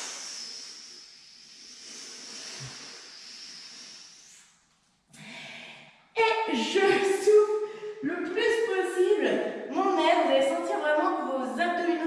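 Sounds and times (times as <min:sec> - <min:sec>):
woman exhaling forcefully: 0:00.0 - 0:04.1.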